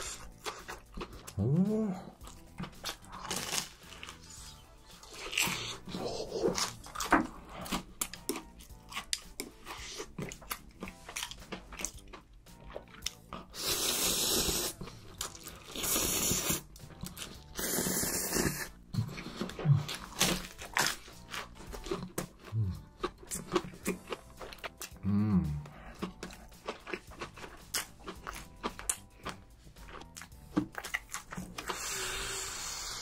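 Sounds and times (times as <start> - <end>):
crisp bites and chewing: 0.1 - 13.6, 14.7 - 17.6, 18.5 - 25.0, 25.6 - 32.0
noodle slurps: 13.5 - 14.8, 15.6 - 16.7, 17.5 - 19.5.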